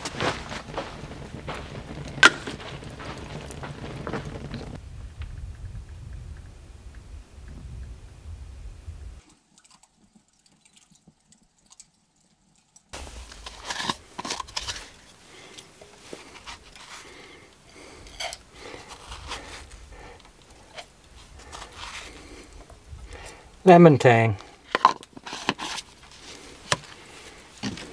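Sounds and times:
low wind rumble: 0.0 - 9.2, 13.0 - 23.7.

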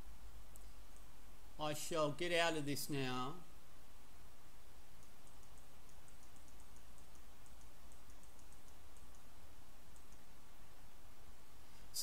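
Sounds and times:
steady low hum: 0.0 - 12.0
mouse scroll wheel ticking: 5.0 - 9.3, 9.9 - 10.3.

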